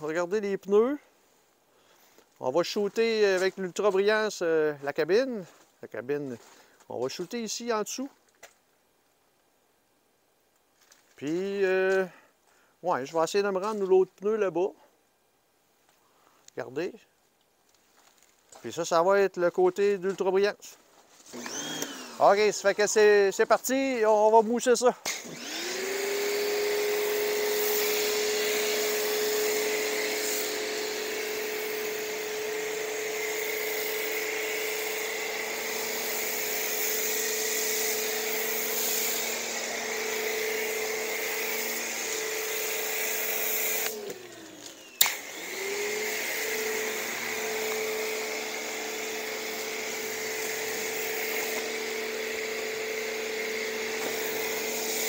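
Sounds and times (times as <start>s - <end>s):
pressure washer motor hum: 21.3s - 22.9s, 25.1s - 55.0s
spray hissing: 26.8s - 55.0s.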